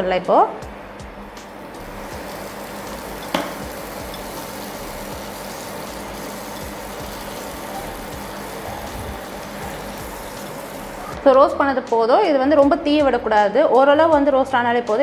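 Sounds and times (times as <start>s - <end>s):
butter sizzling in a pan: 1.7s - 11.2s.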